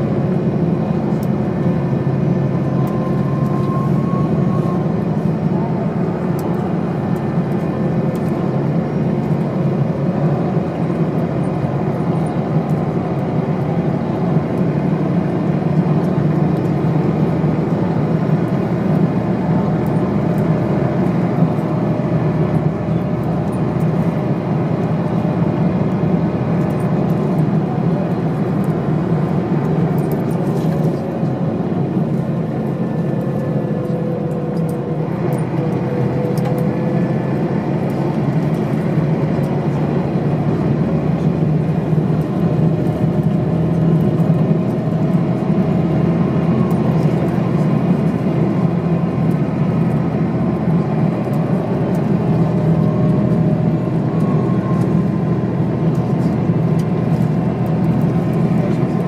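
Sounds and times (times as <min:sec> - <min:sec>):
bus diesel engine rumbling: 0:00.0 - 0:59.0
road noise: 0:00.0 - 0:59.0
faint whine: 0:02.0 - 0:45.5.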